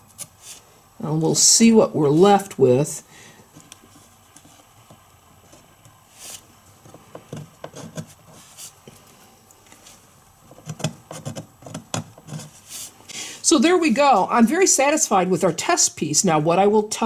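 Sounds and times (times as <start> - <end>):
fingernail scratching stickers: 10.7 - 12.6.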